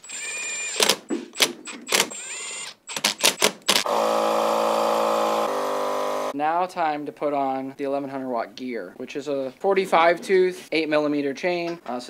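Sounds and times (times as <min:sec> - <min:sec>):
cordless driver motor spinning: 0:00.0 - 0:01.0, 0:01.7 - 0:06.3.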